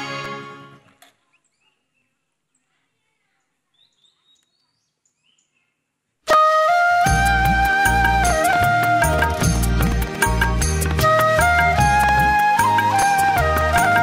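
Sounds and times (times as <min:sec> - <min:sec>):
background music: 0:00.0 - 0:00.9, 0:06.3 - 0:14.0
faint bird chirps: 0:01.2 - 0:06.1.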